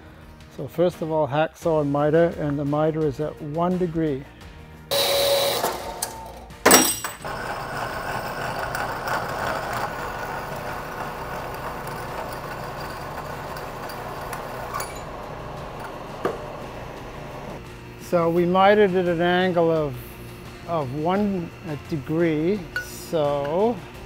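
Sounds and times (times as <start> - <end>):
metal band saw running: 4.9 - 24.0
milling machine cutting steel: 4.9 - 24.0
sharp metal clank: 6.0 - 7.2.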